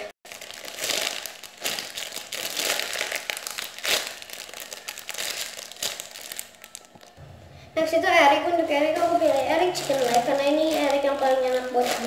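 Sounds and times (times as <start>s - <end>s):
plastic bag crinkling: 0.3s - 7.2s, 8.9s - 12.0s.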